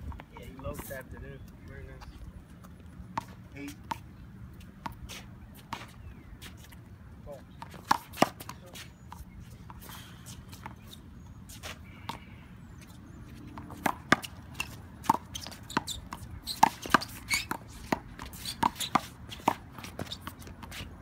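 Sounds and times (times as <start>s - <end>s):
sneakers scuffing: 4.6s - 6.8s.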